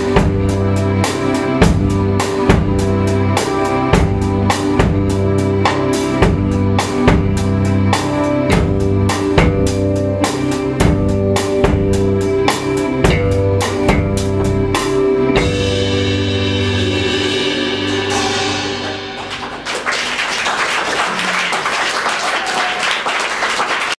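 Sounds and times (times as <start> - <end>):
live band playing: 0.0 - 24.0
drum hits: 8.5 - 10.1, 13.1 - 19.8
cymbal wash: 15.8 - 19.7
audience applause: 18.8 - 24.0.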